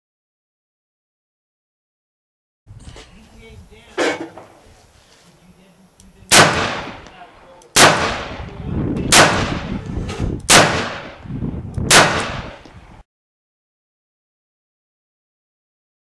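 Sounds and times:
revolver shots with ringing echo: 6.3s - 7.0s, 7.8s - 8.4s, 9.1s - 9.8s, 10.5s - 11.2s, 11.9s - 12.6s.

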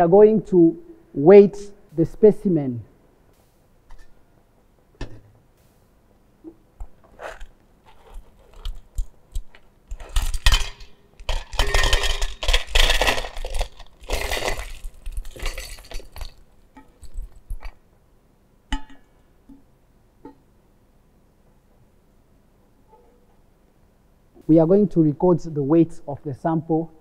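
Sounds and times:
small stones rattling in steel bowl: 9.9s - 17.8s.

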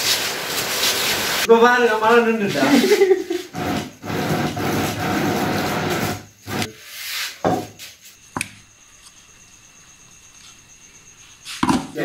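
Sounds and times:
electric mixer grinder running: 3.6s - 6.7s.

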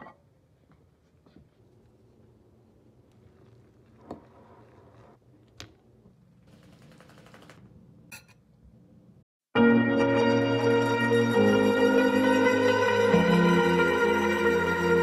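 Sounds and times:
loud music: 9.6s - 15.0s.

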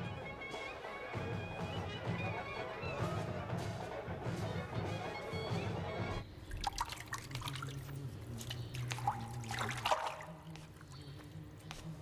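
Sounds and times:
bathwater splashing and dripping: 6.5s - 10.9s.

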